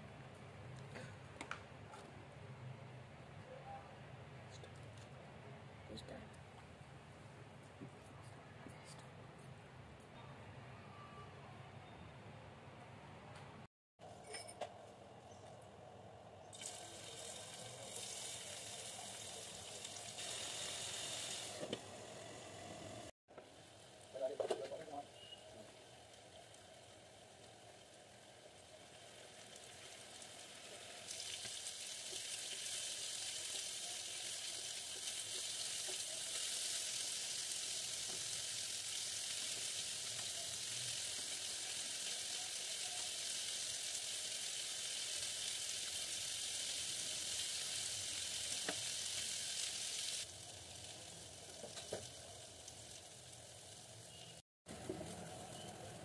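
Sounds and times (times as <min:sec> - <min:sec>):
chicken sizzling in oil: 0:16.5 - 0:56.0.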